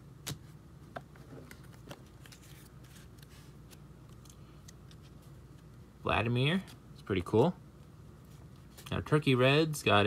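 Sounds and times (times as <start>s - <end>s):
cards being flipped through: 0.2s - 5.8s.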